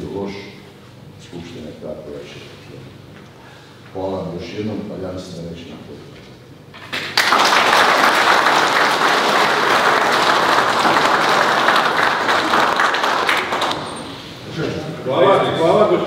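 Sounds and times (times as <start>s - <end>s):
audience applauding: 6.9s - 14.2s.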